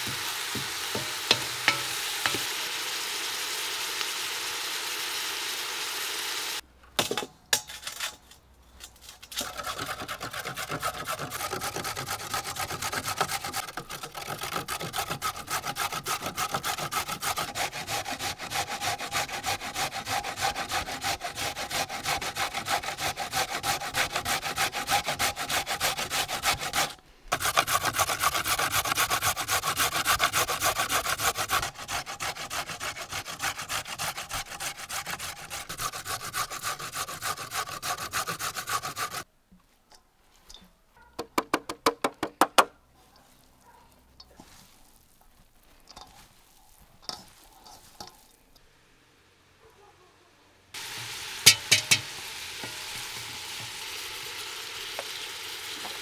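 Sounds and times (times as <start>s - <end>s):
carrots grated on metal grater: 9.4s - 39.2s, 50.9s - 53.3s.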